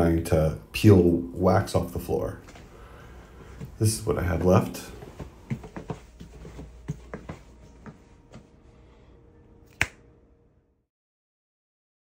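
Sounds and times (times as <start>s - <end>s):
finger snap: 9.7s - 10.1s.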